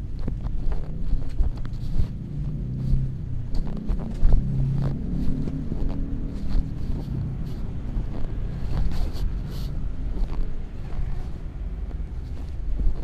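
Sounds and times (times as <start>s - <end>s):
microphone handling knocks and scrapes: 0.0s - 13.0s
wind buffeting microphone: 0.0s - 13.0s.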